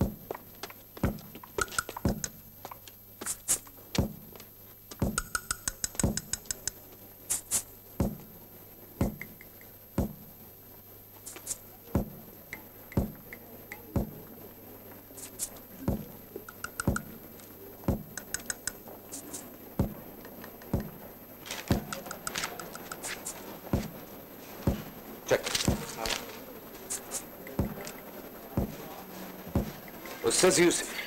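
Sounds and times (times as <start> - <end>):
low drum-like thuds: 0.0 - 0.4, 1.0 - 1.4, 4.0 - 4.3, 4.9 - 5.4, 6.0 - 6.4, 8.0 - 8.4, 9.0 - 10.4, 11.9 - 14.4, 15.8 - 17.2, 17.9 - 18.2, 19.8 - 21.1, 23.7 - 25.0, 25.6 - 26.0, 27.5 - 29.9.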